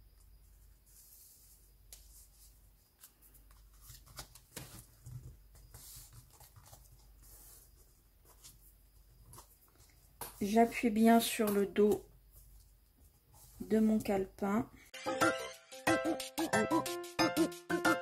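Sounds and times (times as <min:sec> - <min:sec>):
paper rustling: 0:00.5 - 0:14.1.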